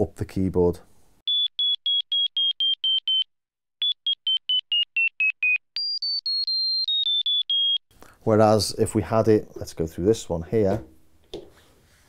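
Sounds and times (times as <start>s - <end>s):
synthesizer high whistle notes: 3.8s - 7.8s.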